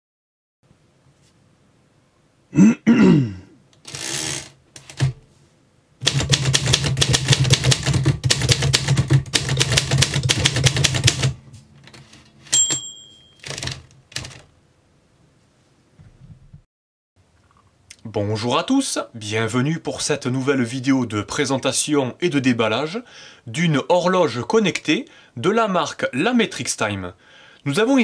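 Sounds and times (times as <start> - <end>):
typewriter keystrikes: 6.0 - 11.4, 12.6 - 14.5
typewriter carriage bell ding: 12.5 - 13.8.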